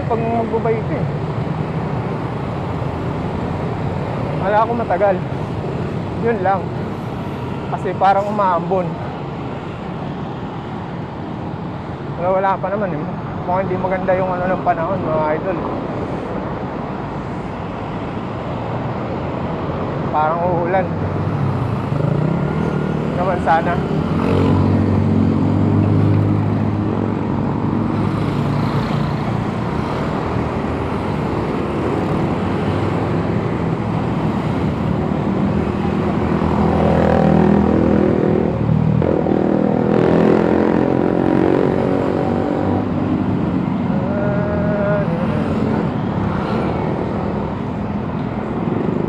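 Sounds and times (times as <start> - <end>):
traffic engines humming: 0.0 - 49.0
vehicle passing close by: 21.4 - 49.0.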